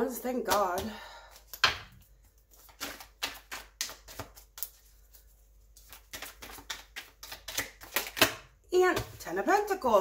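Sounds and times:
cards being shuffled: 1.3 - 8.4.

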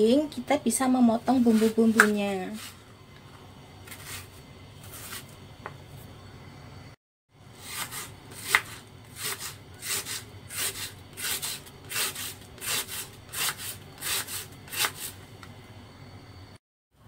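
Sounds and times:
knife slicing onion on board: 1.3 - 2.8, 7.6 - 15.2.

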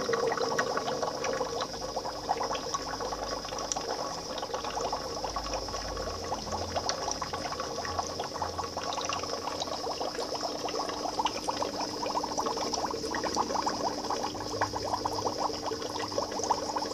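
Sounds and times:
steady hum: 0.0 - 3.2
aquarium water bubbling: 0.0 - 16.9.

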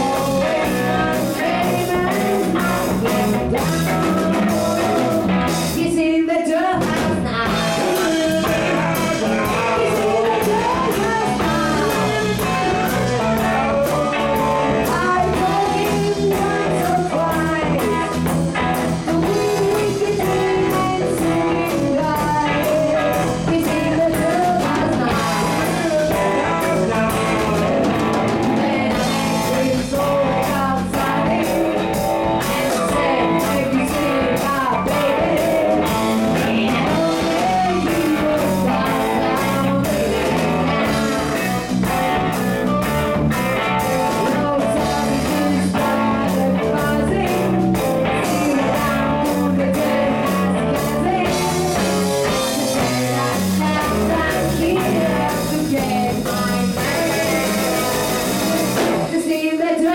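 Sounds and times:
man singing into a microphone: 0.0 - 5.3, 6.8 - 18.3, 18.9 - 40.5
drum kit: 0.0 - 59.9
electric guitars: 0.0 - 59.9.

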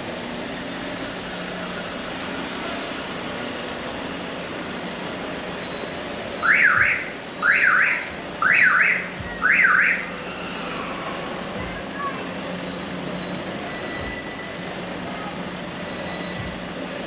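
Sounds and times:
street background noise: 0.0 - 17.0
electronic siren wailing: 6.4 - 10.1.

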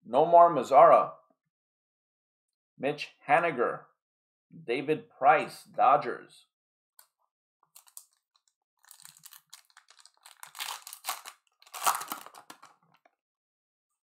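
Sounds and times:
plastic wrapper crinkling: 7.7 - 13.0.

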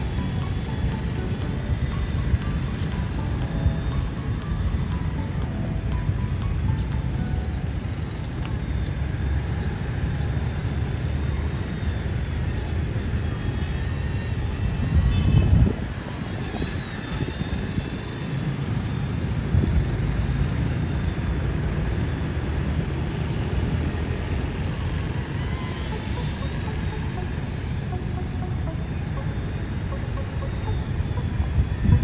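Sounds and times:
faint electric rotor whine: 0.0 - 32.0
wind buffeting microphone: 14.6 - 18.1.

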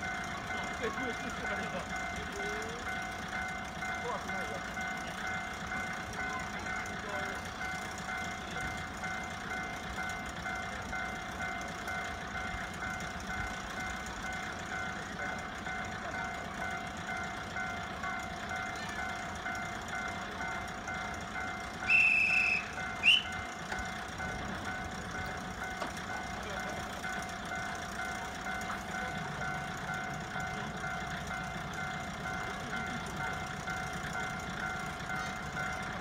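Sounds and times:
railcar engine idling: 0.0 - 36.0
train whistle: 21.8 - 23.5.

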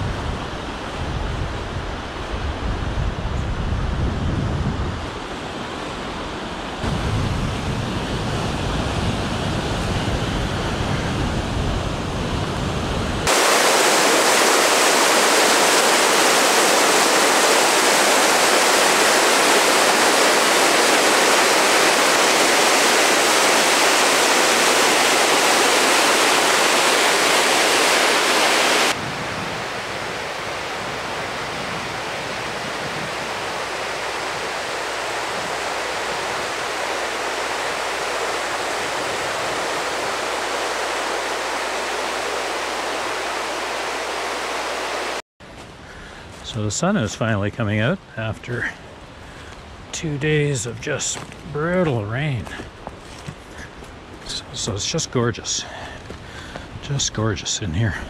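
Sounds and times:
rushing white water: 5.0 - 45.2.

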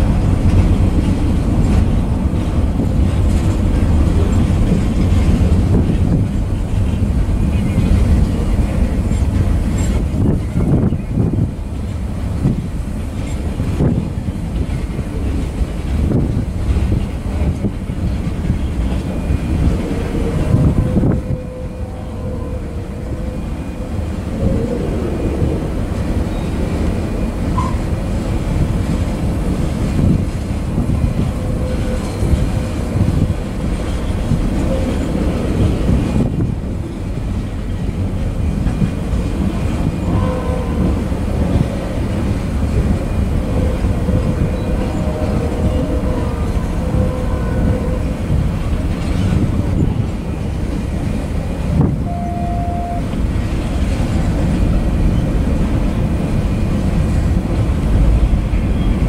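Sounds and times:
freight train wheels clattering: 0.0 - 21.4, 23.9 - 52.0.

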